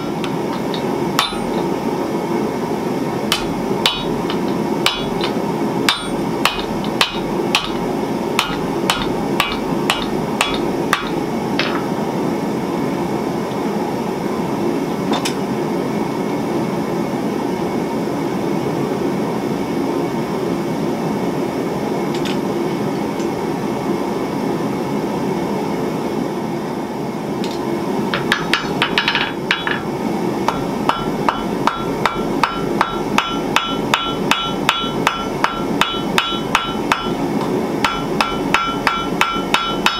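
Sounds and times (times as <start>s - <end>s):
hammer striking steel on anvil: 0.0s - 1.7s, 3.3s - 7.8s, 8.4s - 11.9s, 28.2s - 29.9s, 30.5s - 37.2s, 37.8s - 39.9s.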